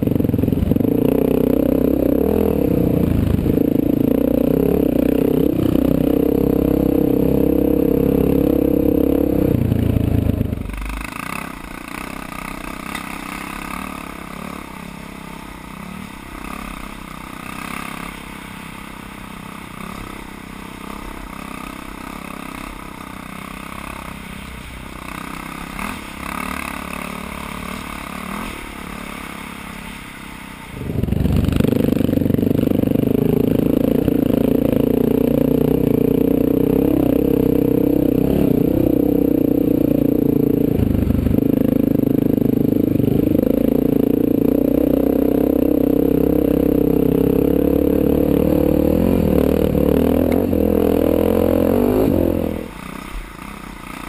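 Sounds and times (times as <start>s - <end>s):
motorcycle engine running: 0.0s - 54.0s
wind: 0.0s - 54.0s
clatter: 10.6s - 14.7s.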